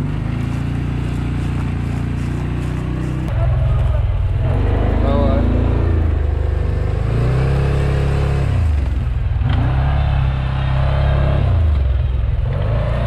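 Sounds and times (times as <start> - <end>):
quad bike engine revving: 0.0 - 13.0.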